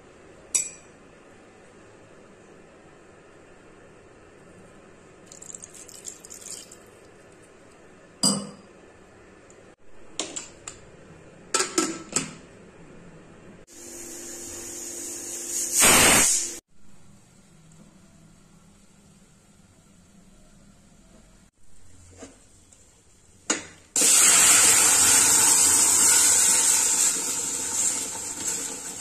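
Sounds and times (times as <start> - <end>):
pressure cooker steam whistle: 24.0 - 28.9.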